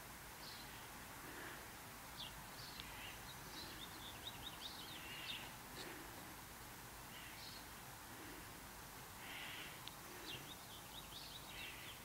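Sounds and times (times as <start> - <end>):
faint bird chirps: 0.4 - 0.9, 2.1 - 6.0, 7.1 - 7.8, 9.2 - 12.0.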